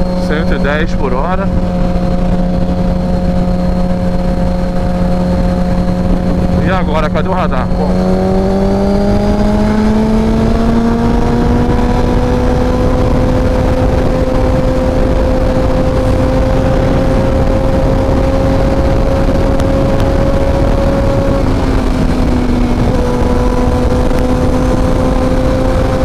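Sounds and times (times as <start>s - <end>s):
wind and road rush: 0.0s - 26.0s.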